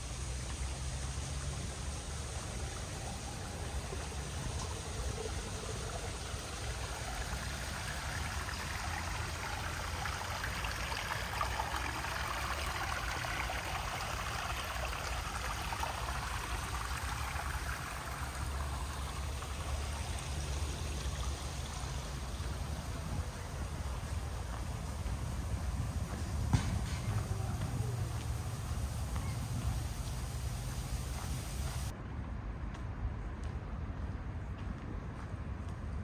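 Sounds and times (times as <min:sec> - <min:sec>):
running water rushing: 0:00.0 - 0:31.9.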